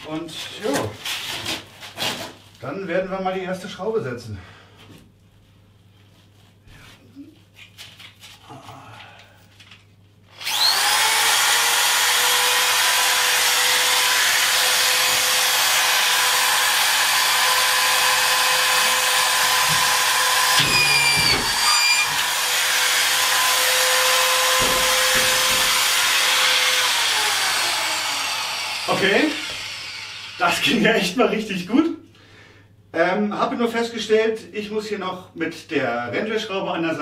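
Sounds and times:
screw gun high whine: 19.8s - 30.6s.

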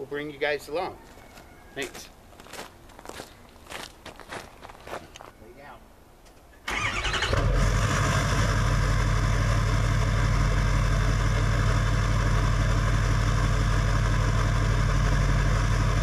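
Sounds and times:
vehicle engine idling: 6.7s - 16.0s.

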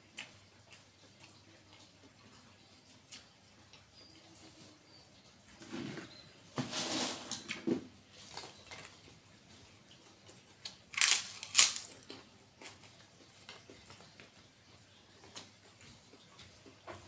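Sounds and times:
food crunching in mouth: 9.9s - 14.4s.

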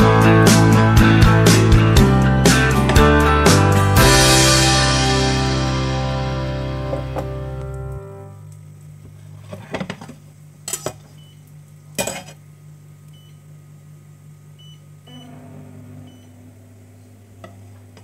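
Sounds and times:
low electric hum: 4.9s - 18.0s.

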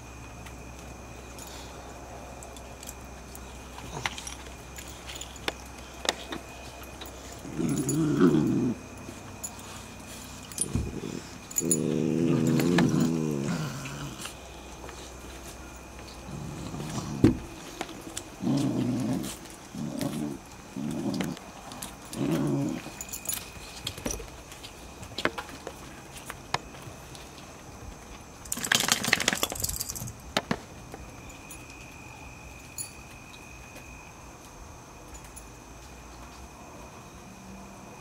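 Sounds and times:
puppies growling: 2.8s - 23.4s
scuffling noise: 14.1s - 28.3s.

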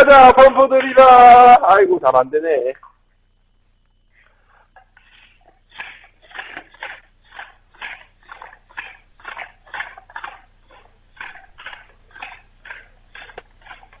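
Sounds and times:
pump drill rasping strokes: 4.2s - 14.0s.

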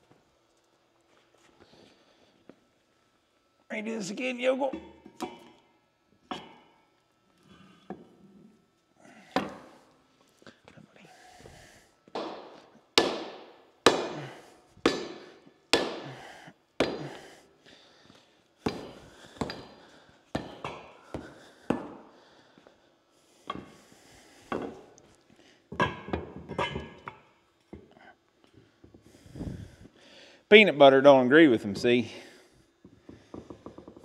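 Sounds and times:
sledgehammer blows ringing: 12.2s - 16.2s.

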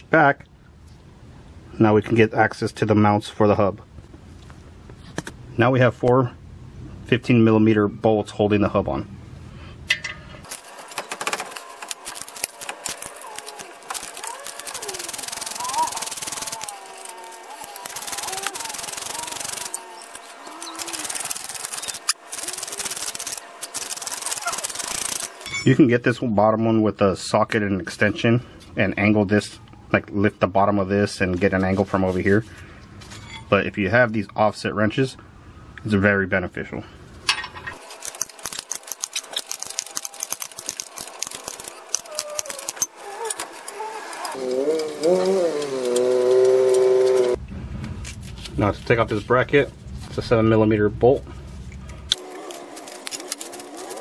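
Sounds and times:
ratchet wrench clicking: 11.2s - 25.6s, 37.8s - 43.8s.

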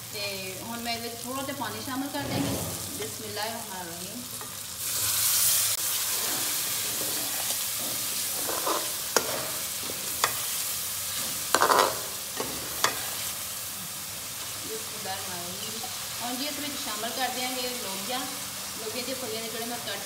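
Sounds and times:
masala sizzling: 0.0s - 20.0s
water hissing in hot pan: 0.0s - 20.0s
metal spoon scraping pan: 5.9s - 13.3s.

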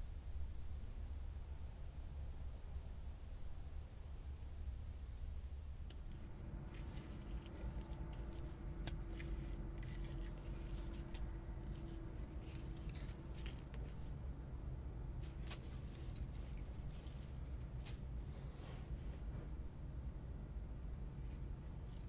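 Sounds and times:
faint steady hum: 0.0s - 22.0s
dry plant fibres rustling: 5.8s - 14.2s, 15.1s - 19.0s.

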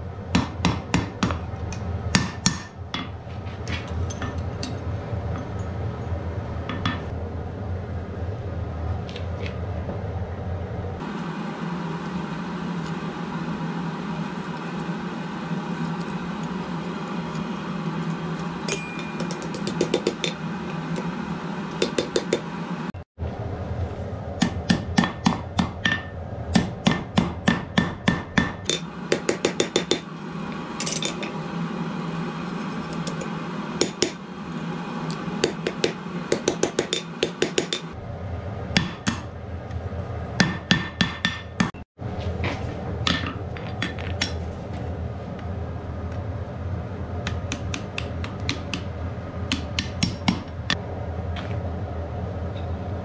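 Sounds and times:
steady hum: 0.0s - 53.0s
hammer ringing on anvil: 18.7s - 19.5s.

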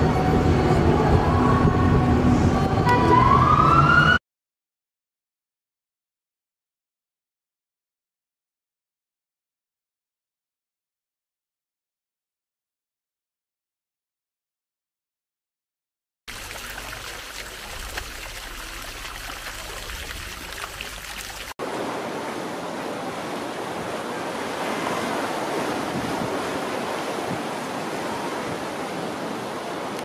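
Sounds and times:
fountain water splashing: 16.3s - 21.8s.

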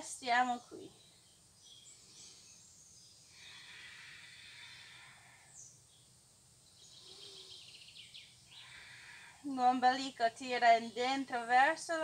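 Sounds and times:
soft breath: 1.9s - 5.8s, 8.5s - 9.5s.

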